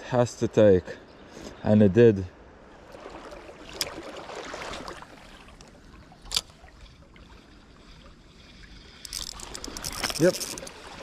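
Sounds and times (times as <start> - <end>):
river water rushing: 2.8 - 7.4.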